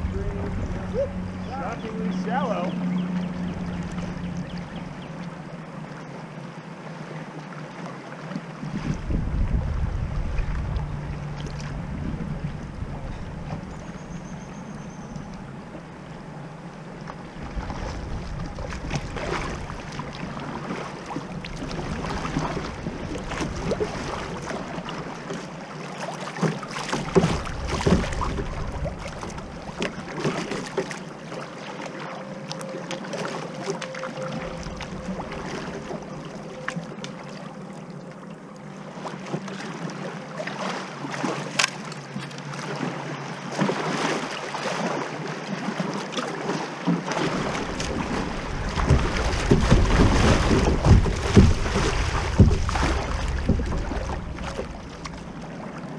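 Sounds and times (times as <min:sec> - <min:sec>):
wind buffeting microphone: 0:00.0 - 0:05.1, 0:08.6 - 0:14.2, 0:47.4 - 0:55.9
rippling river water: 0:00.0 - 0:55.9
kayak paddle splashes: 0:16.9 - 0:55.9.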